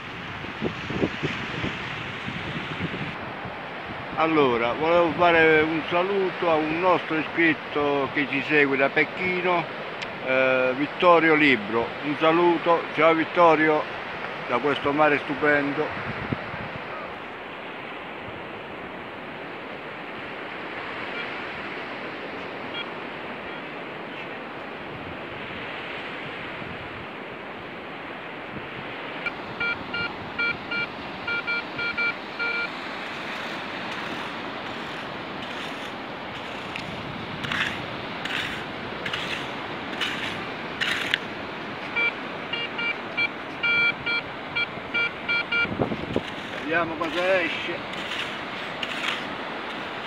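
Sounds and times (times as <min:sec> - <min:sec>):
surf washing on shore: 0:00.0 - 0:50.0
metal detector beeps: 0:21.1 - 0:21.4, 0:22.7 - 0:22.9, 0:29.2 - 0:32.8, 0:41.9 - 0:49.2
scoop digging into wet sand: 0:33.0 - 0:41.2, 0:46.1 - 0:50.0.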